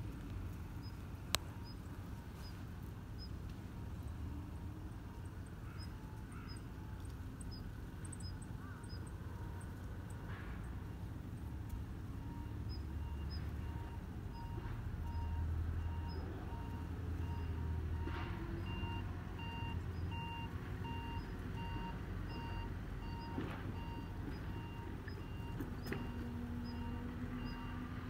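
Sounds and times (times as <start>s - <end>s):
low engine rumble: 0.0s - 28.0s
reversing alarm beeping: 12.1s - 28.0s.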